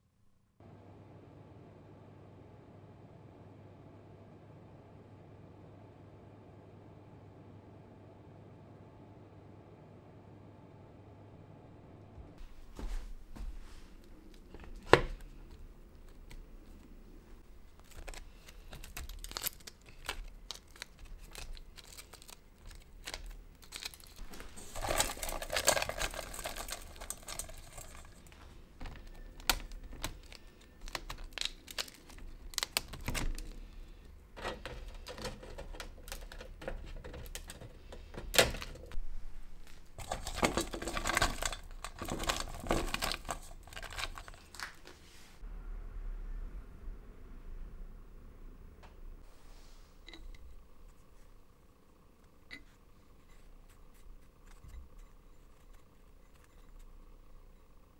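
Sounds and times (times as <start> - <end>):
dry fruit slices crinkling: 17.5 - 33.9, 39.6 - 45.0.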